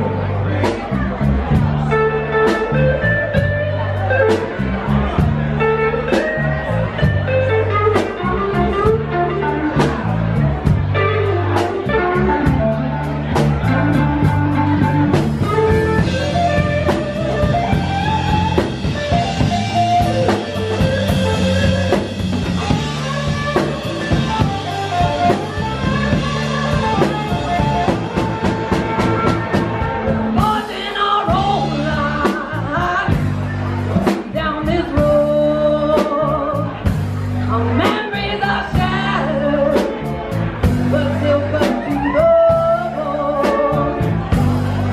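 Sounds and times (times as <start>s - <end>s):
electric guitar melody: 0.0s - 44.9s
live band playing: 0.0s - 44.9s
woman singing: 30.4s - 33.3s, 34.3s - 36.8s, 37.5s - 39.9s, 40.8s - 44.1s.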